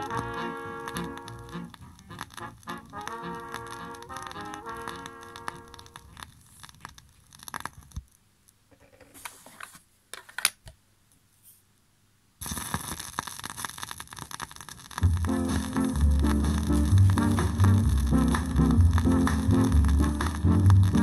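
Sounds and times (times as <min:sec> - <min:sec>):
ska music with heavy bass: 0:00.0 - 0:05.9, 0:15.0 - 0:21.0
vinyl crackling surface noise: 0:00.0 - 0:11.7, 0:12.4 - 0:21.0
vinyl record being handled: 0:08.7 - 0:10.7
stylus dropping into groove: 0:15.0 - 0:21.0.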